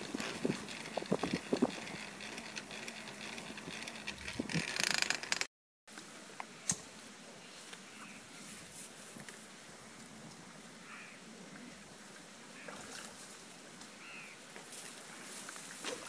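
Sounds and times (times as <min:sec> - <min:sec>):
hand-cranked blower gears clicking: 0:00.0 - 0:05.5.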